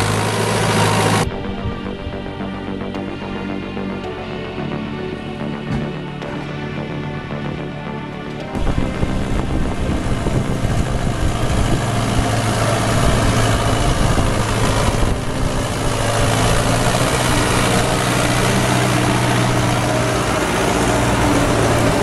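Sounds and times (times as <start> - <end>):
tractor engine under load: 0.0 - 1.4, 5.6 - 22.0
tyres splashing mud and water: 10.2 - 22.0.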